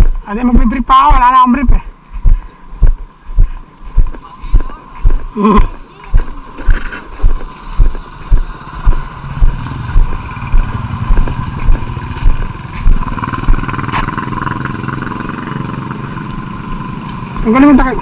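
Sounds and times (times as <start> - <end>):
low thumps: 1.6 - 14.4
small engine running: 6.7 - 17.9.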